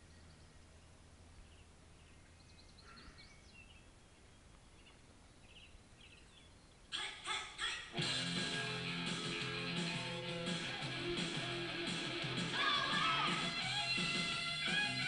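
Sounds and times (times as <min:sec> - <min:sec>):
faint bird chirps: 0:00.0 - 0:07.7
background tape hiss: 0:00.0 - 0:15.0
rock music with loud hits: 0:08.0 - 0:15.0.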